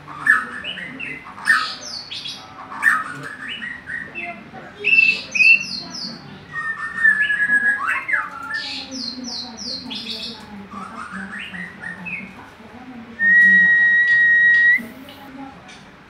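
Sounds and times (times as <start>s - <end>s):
bird singing whistled phrases: 6.5s - 9.2s, 13.2s - 14.8s
long steady bird whistle: 13.2s - 14.8s.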